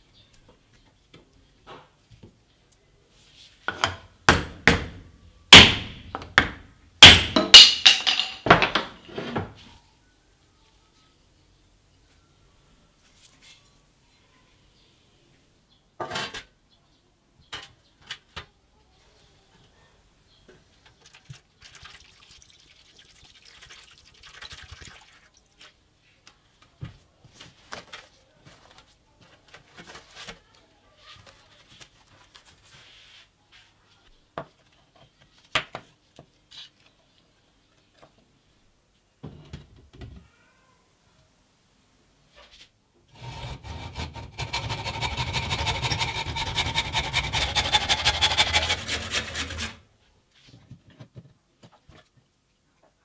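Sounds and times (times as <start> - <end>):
scraping or rubbing: 42.3 - 49.8.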